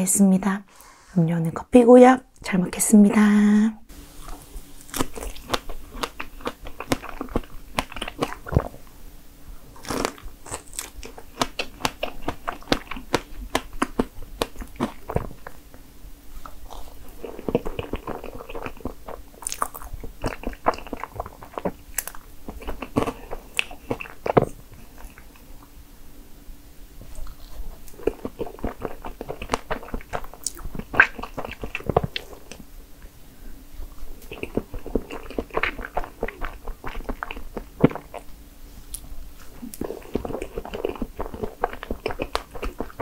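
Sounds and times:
chewing with mouth clicks: 0:04.2 - 0:08.8, 0:09.8 - 0:15.6, 0:16.4 - 0:25.7, 0:27.0 - 0:32.6, 0:33.8 - 0:38.3, 0:38.9 - 0:43.0.

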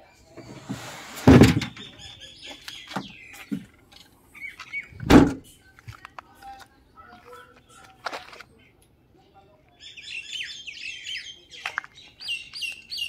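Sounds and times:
birds chirping: 0:00.0 - 0:13.0
car tailgate slamming: 0:00.6 - 0:01.9, 0:05.0 - 0:05.4
boot floor board thump: 0:05.0 - 0:05.4.

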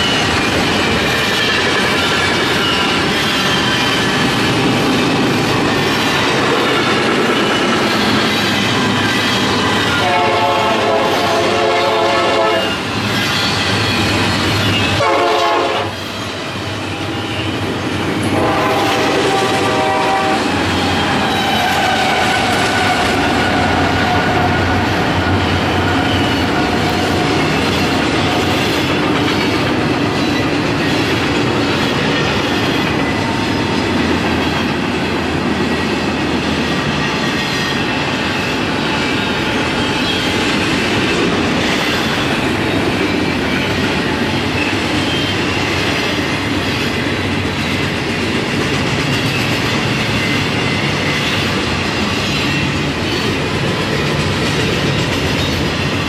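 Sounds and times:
diesel locomotive rumbling: 0:00.0 - 0:56.0
train wheels clickety-clack: 0:00.0 - 0:56.0
train horn blasts: 0:09.9 - 0:12.8, 0:14.9 - 0:16.0, 0:18.3 - 0:20.6.

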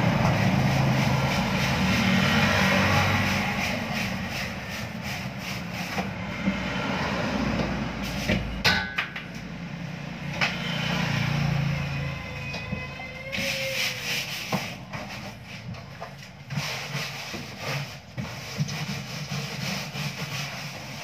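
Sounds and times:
freezer motor hum: 0:00.0 - 0:08.0
metallic knocks and clanks: 0:07.6 - 0:09.5.

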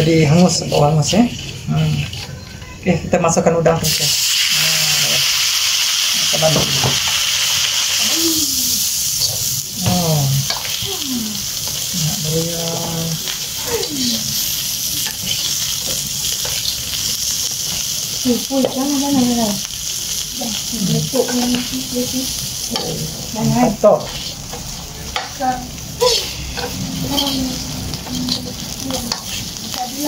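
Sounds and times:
prawns sizzling in a wok: 0:00.0 - 0:30.0
metal spatula stirring in wok: 0:08.8 - 0:19.2, 0:20.9 - 0:30.0.

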